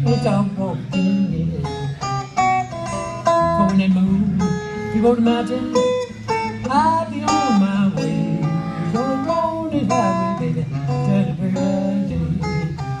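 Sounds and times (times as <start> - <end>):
acoustic guitar playing blues: 0.0 - 13.0.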